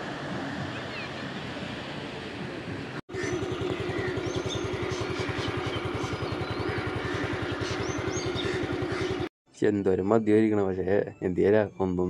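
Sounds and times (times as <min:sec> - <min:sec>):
birds chirping: 0:00.5 - 0:01.8, 0:03.1 - 0:09.3
small engine idling: 0:03.1 - 0:09.3.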